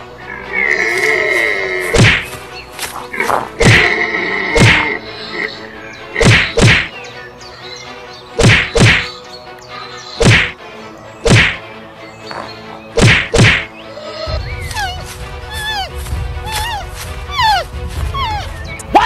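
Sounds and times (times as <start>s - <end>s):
faint background music: 0.0s - 19.0s
heavy whacks: 1.9s - 2.4s, 3.6s - 3.8s, 4.6s - 4.8s, 6.2s - 6.9s, 8.4s - 9.1s, 10.2s - 10.6s, 11.2s - 11.6s, 13.0s - 13.7s.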